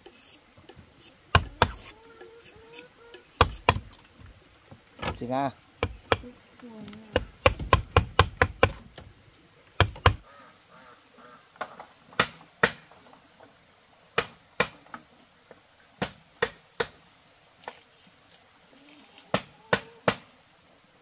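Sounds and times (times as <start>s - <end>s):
wooden mallet knocking bamboo: 1.3s - 1.9s, 3.4s - 4.0s, 5.8s - 6.2s, 7.1s - 8.8s, 9.8s - 10.2s.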